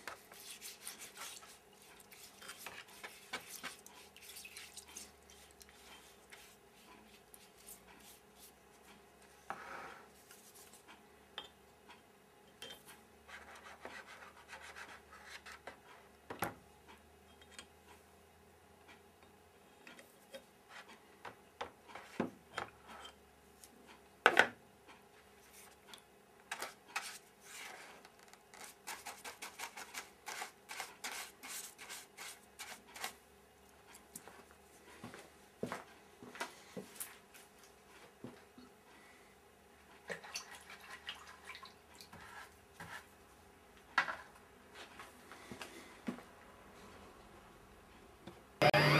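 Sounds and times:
paintbrush scrubbing metal: 0:00.0 - 0:08.6.

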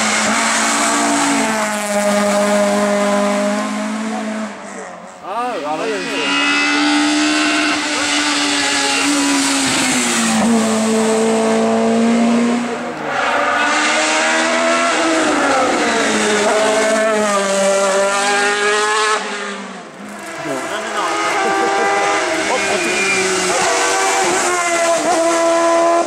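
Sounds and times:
race car engine revving: 0:00.0 - 0:26.0.

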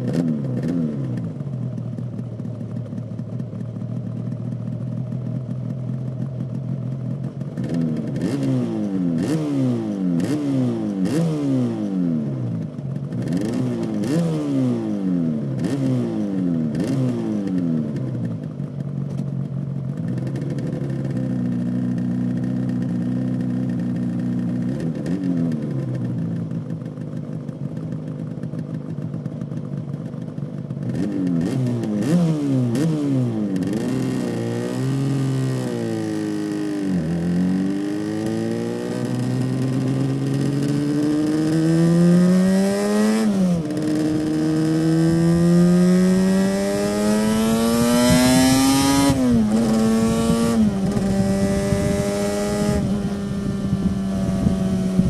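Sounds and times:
motorcycle engine idling and revving: 0:00.0 - 0:55.0.

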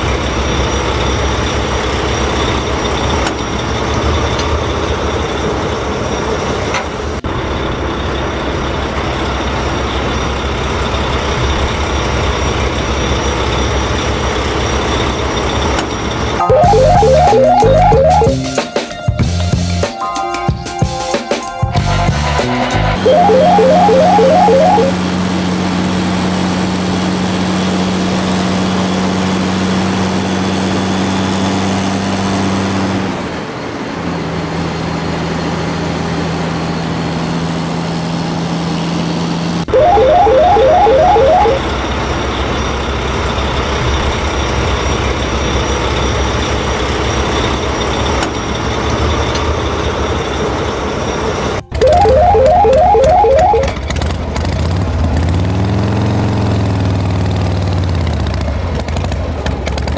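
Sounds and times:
short jingle of repeating notes: 0:16.4 - 0:18.6.

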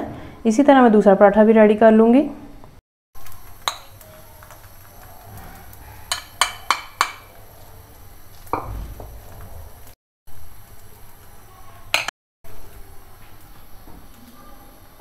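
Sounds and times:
metal spoon clinking on ceramic: 0:06.1 - 0:07.2.

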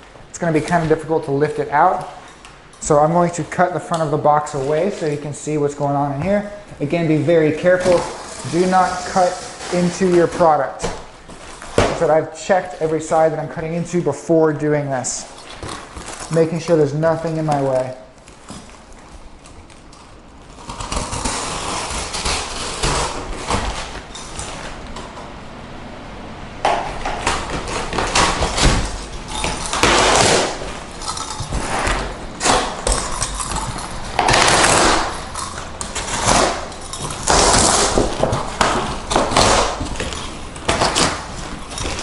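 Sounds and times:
knife cutting cardboard box: 0:20.6 - 0:24.6, 0:27.2 - 0:30.7, 0:34.2 - 0:35.2, 0:35.9 - 0:42.0.

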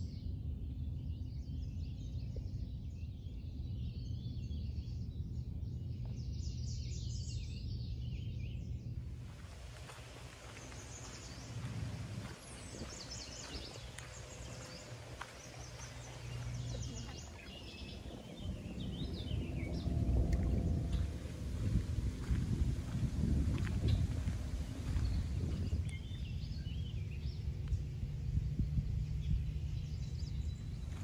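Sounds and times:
steady low rumble: 0:00.2 - 0:31.0
wild birds chirping and singing: 0:00.8 - 0:31.0.

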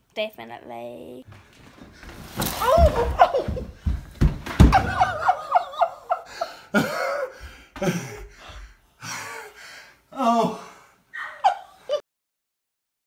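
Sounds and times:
body thumping on wooden floor: 0:01.3 - 0:05.4
person laughing: 0:02.6 - 0:03.9, 0:04.6 - 0:08.3, 0:10.2 - 0:12.0.

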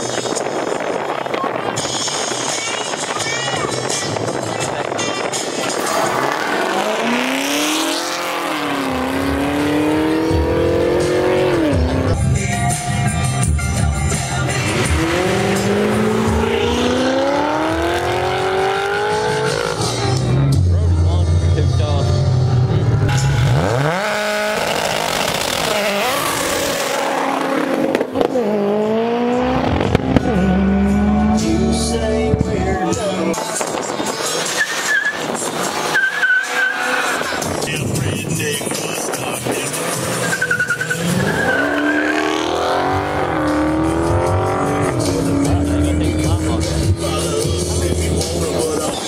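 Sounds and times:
tire squeal: 0:05.7 - 0:08.7, 0:34.2 - 0:37.6, 0:39.6 - 0:43.1
car engine revving hard: 0:05.8 - 0:12.2, 0:14.4 - 0:20.2, 0:23.0 - 0:32.1, 0:39.3 - 0:49.0.

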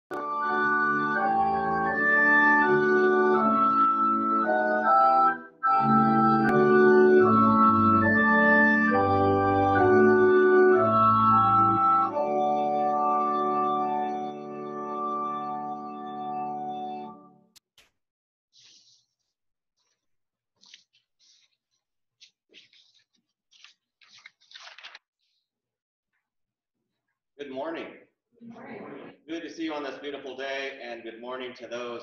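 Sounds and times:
organ playing held chords: 0:00.1 - 0:17.4.

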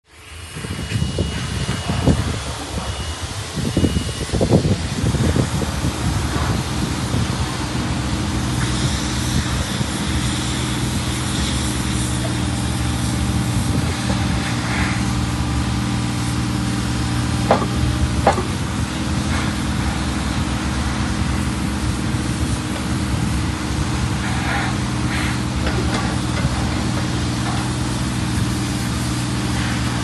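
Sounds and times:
excavator diesel engine running: 0:00.2 - 0:30.0
sharp knocks: 0:17.5 - 0:18.6.

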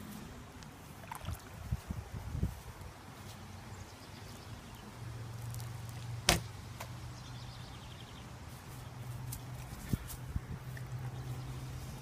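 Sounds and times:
water balloon thud: 0:06.2 - 0:06.5.

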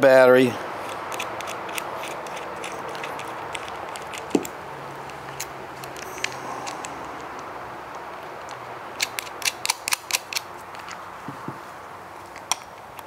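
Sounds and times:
steady low hum: 0:00.5 - 0:09.7.

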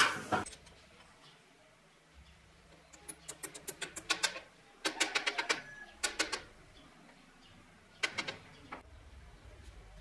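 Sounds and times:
metal-on-metal clicking: 0:02.9 - 0:06.5.

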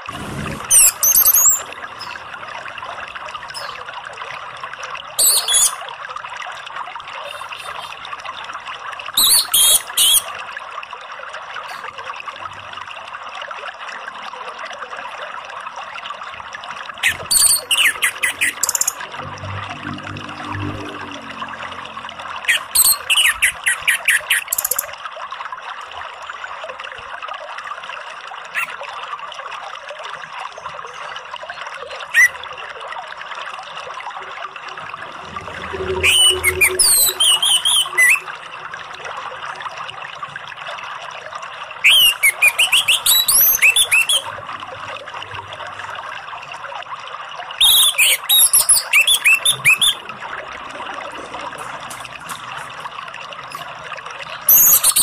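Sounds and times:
thrush singing whistled notes: 0:17.0 - 0:21.2, 0:22.5 - 0:24.9, 0:35.1 - 0:38.4, 0:41.8 - 0:44.3, 0:47.6 - 0:50.1, 0:54.5 - 0:55.0.

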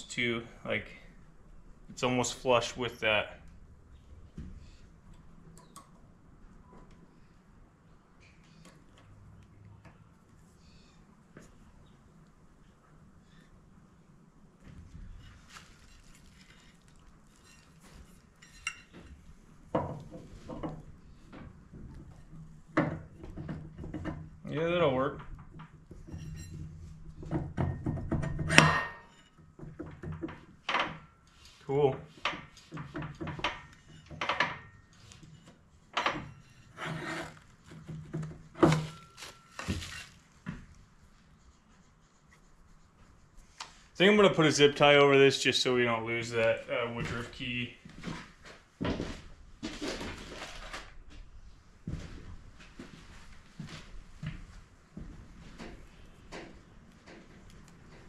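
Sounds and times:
metal clinks and knocks: 0:25.4 - 0:31.4.

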